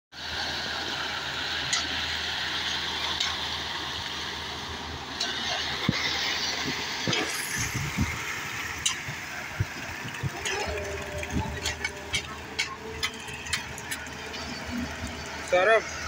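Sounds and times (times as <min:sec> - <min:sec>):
diesel engine running: 0:00.2 - 0:16.0
wet concrete pouring down chute: 0:05.2 - 0:16.0.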